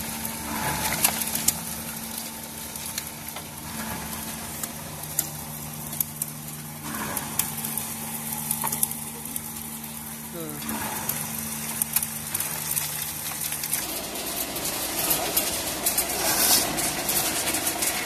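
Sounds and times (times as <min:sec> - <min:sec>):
soil shoveled into hopper: 0:00.0 - 0:05.3, 0:06.8 - 0:07.8, 0:10.7 - 0:18.0
soil crusher humming: 0:00.0 - 0:18.0
soil rattling and crackling: 0:00.0 - 0:18.0.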